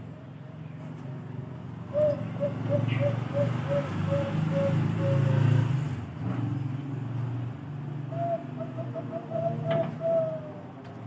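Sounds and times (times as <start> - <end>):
dove cooing: 1.9 - 5.8, 8.1 - 10.9.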